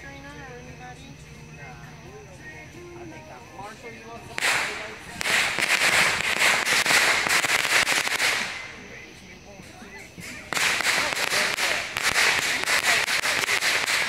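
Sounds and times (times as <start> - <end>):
firework hissing and crackling: 4.2 - 14.0.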